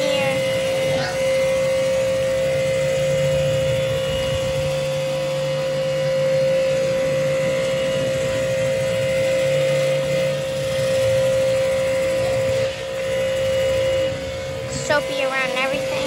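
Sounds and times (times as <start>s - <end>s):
electric pressure washer running: 0.0s - 16.0s
water jet hissing on concrete: 11.0s - 16.0s.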